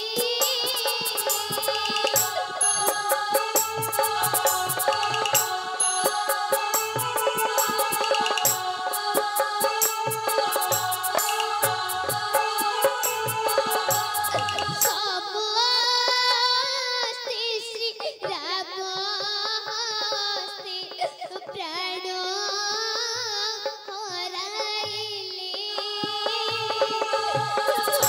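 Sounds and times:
instrumental backing: 0:00.0 - 0:15.2
high voice singing with vibrato: 0:00.0 - 0:28.0.

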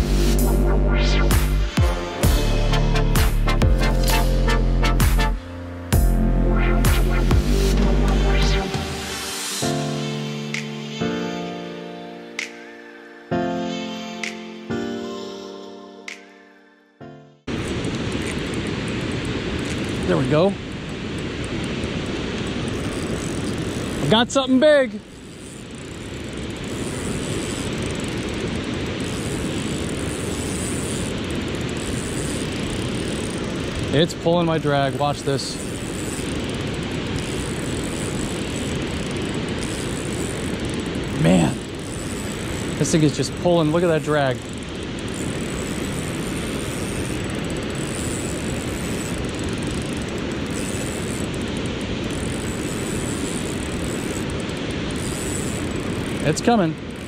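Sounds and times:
fishing reel drag ratcheting: 0:12.3 - 0:13.2, 0:17.5 - 0:57.0
water roaring over spillway: 0:38.4 - 0:45.0, 0:54.2 - 0:56.9.

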